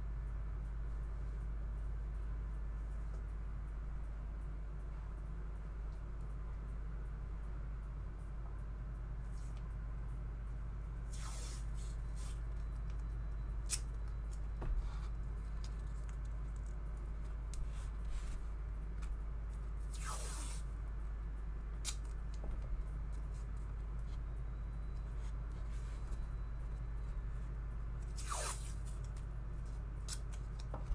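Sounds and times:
low electrical hum: 0:00.0 - 0:30.9
short hissing swishes: 0:11.1 - 0:12.4, 0:19.9 - 0:20.7, 0:28.2 - 0:28.9.

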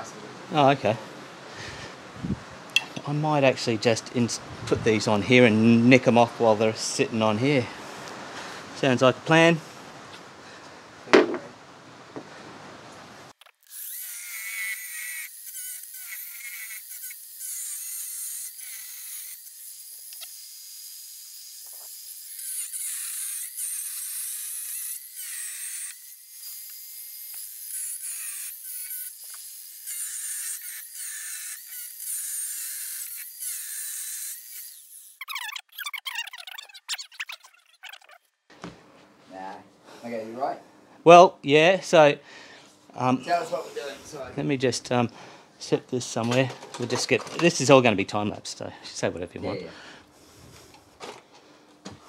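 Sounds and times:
angle grinder cutting metal: 0:13.6 - 0:35.4.

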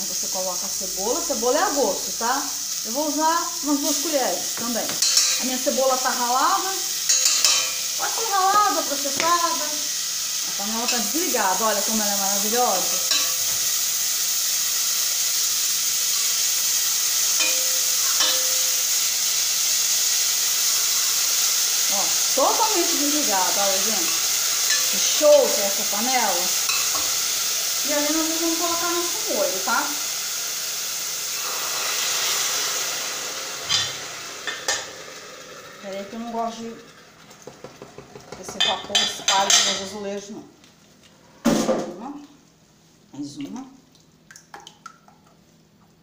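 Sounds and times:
onion and garlic sizzling in oil: 0:00.0 - 0:41.0
metal lid clinking on pot: 0:05.0 - 0:05.4, 0:07.1 - 0:07.9
spoon knocking on pot: 0:37.4 - 0:39.8.

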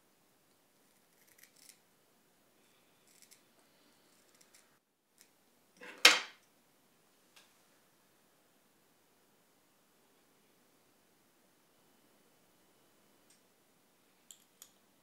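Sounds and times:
scissors snipping hair: 0:01.2 - 0:01.8.

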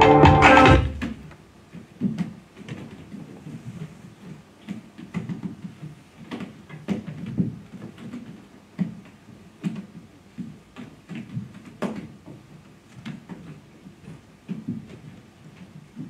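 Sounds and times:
dancers knocking on stage floor: 0:00.0 - 0:01.2.

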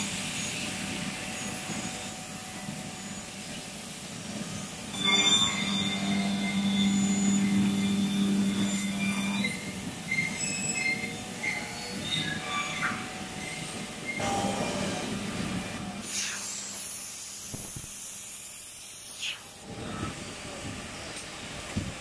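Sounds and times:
machinery and conveyors rumbling: 0:00.3 - 0:16.0.

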